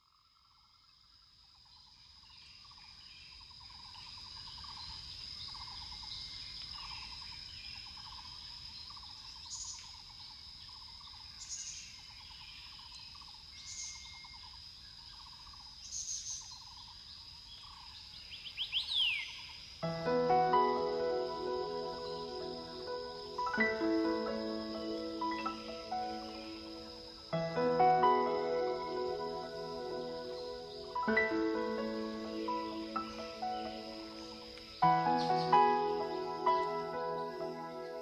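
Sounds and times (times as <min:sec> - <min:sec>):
chirping trills: 0:19.8 - 0:38.0
steady high-pitched tone: 0:19.8 - 0:38.0.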